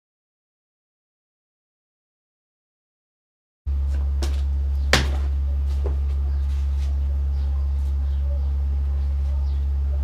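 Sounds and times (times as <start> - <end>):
low hum: 3.7 - 10.0
wooden posts knocking: 3.9 - 6.1.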